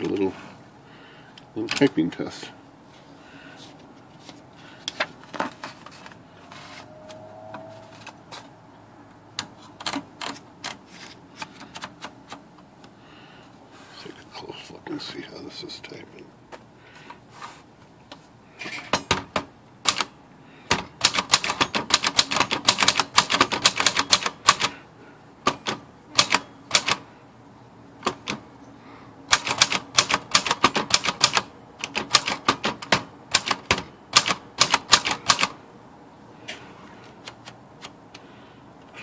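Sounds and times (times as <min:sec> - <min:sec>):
typewriter keys clacking: 0:21.0 - 0:24.7, 0:25.6 - 0:27.0, 0:29.3 - 0:35.5.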